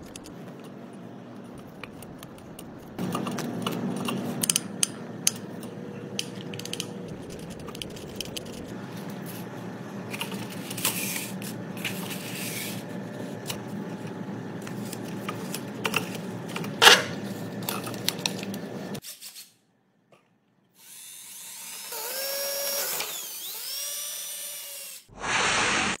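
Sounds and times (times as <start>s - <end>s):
steady low hum: 0.0s - 19.0s
power drill boring into wood: 20.8s - 25.7s.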